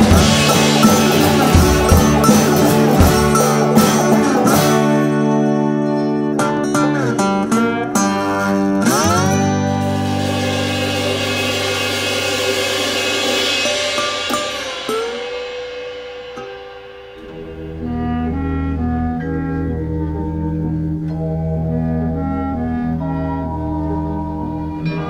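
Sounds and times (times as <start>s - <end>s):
rising sweep: 0.0s - 4.9s
cymbal ringing: 0.0s - 5.6s, 9.4s - 19.1s
strummed guitar chords: 0.0s - 25.0s
soft tune: 13.6s - 25.0s.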